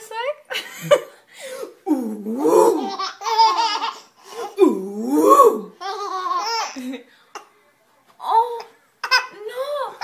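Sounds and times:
baby laughing: 0:02.5 - 0:04.6, 0:05.7 - 0:07.0.

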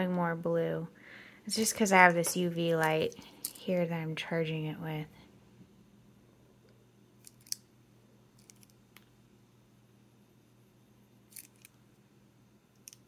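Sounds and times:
plastic pens clicking: 0:12.8 - 0:13.0.

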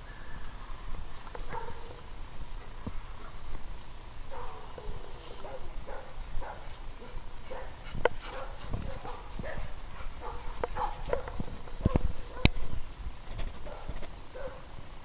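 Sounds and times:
dogs barking and whining: 0:04.3 - 0:12.6.

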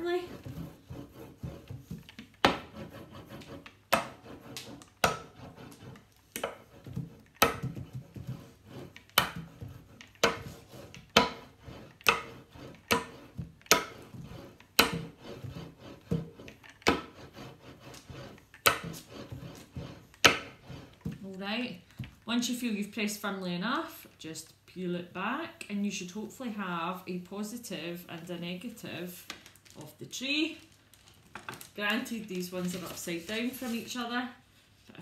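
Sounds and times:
sharp knocks and taps: 0:06.4 - 0:16.3
hand rubbing on paper: 0:32.6 - 0:34.1.

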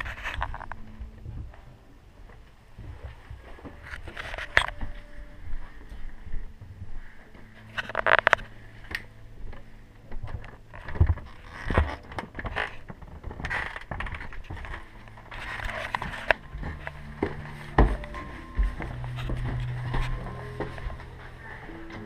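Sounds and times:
faint low hum: 0:00.0 - 0:22.0
footsteps: 0:00.0 - 0:22.0
heavy thumps: 0:12.8 - 0:22.0.

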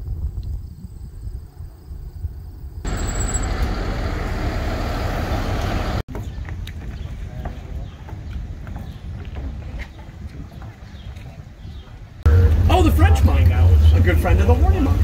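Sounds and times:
wind rumble on microphone: 0:00.0 - 0:02.9
street traffic noise: 0:02.8 - 0:15.0.

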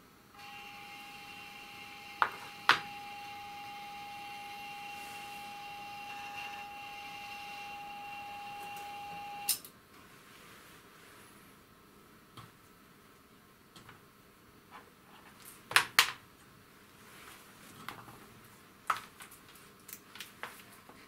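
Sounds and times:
electrical whine: 0:00.3 - 0:09.6.

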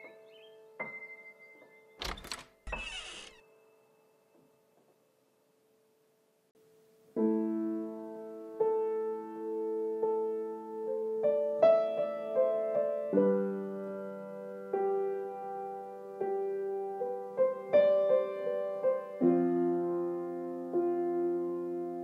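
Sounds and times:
slow piano chords: 0:00.0 - 0:02.0, 0:06.9 - 0:22.0.

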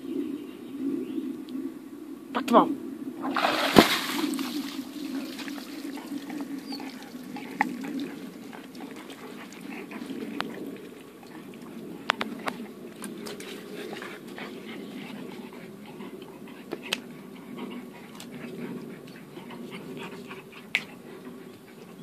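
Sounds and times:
water splashing: 0:03.2 - 0:10.2
water trickling and dripping: 0:03.4 - 0:12.2.

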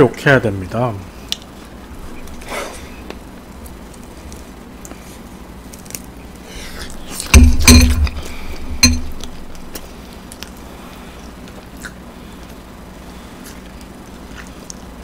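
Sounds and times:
metal tongs clanking on a pan: 0:08.8 - 0:09.3.

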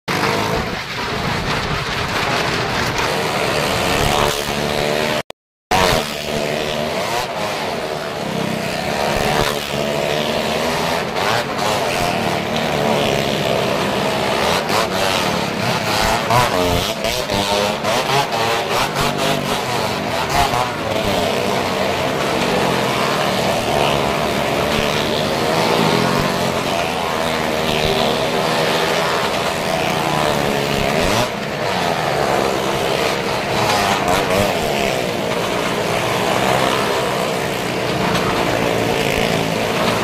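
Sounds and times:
car and motorcycle engines revving: 0:00.1 - 0:40.0.

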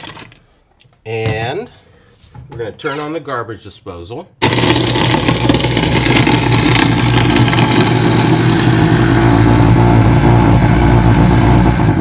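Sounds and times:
ice grinding and rattling: 0:04.4 - 0:09.2
garbage disposal motor hum: 0:04.4 - 0:12.0.

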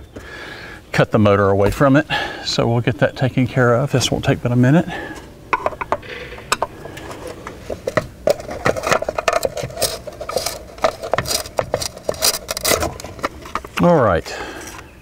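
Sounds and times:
screwdriver clicks and scrapes: 0:06.5 - 0:13.8.

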